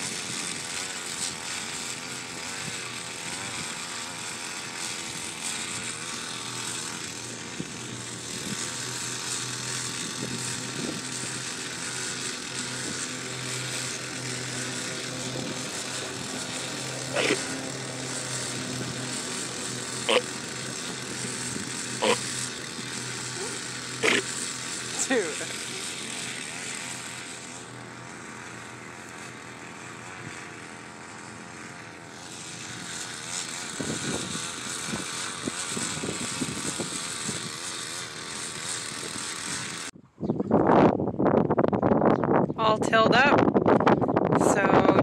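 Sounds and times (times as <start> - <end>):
garden tiller engine running: 0.0 - 40.2, 42.6 - 45.0.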